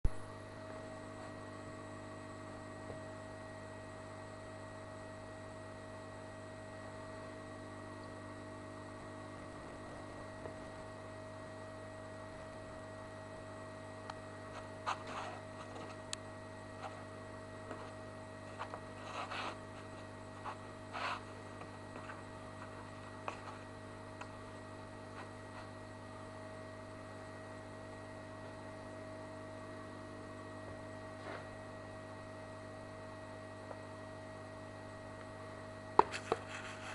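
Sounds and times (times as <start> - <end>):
steady electrical hum: 0.0 - 36.9.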